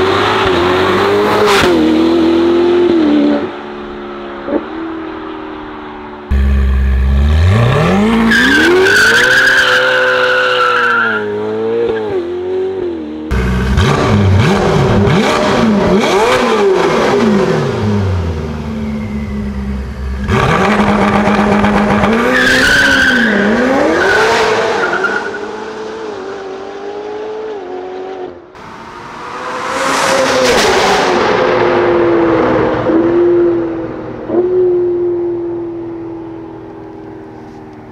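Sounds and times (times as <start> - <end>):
sports car engine revving: 13.3 - 18.7
high squeal: 18.7 - 20.2.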